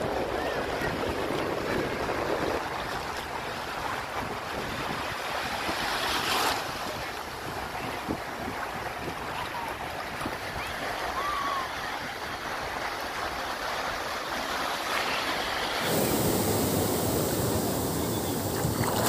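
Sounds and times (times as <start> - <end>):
wind buffeting microphone: 0.0 - 5.7, 15.8 - 19.0
sea surf breaking: 13.1 - 19.0.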